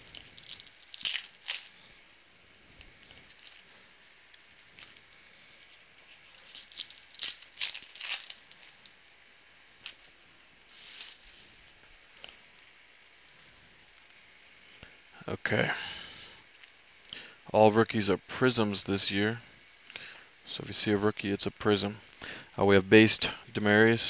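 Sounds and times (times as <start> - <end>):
foil wrapper crinkling: 0.0 - 1.9, 2.8 - 3.7, 4.3 - 9.0, 10.7 - 11.7.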